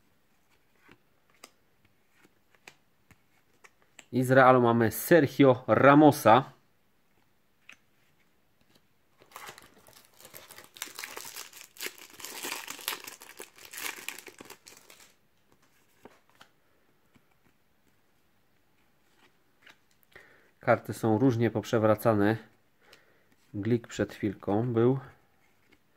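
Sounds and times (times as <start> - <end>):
faint clicks of cards handled: 0.4 - 4.1, 7.1 - 8.9, 25.4 - 25.9
foil packet crinkling and tearing: 9.2 - 15.2.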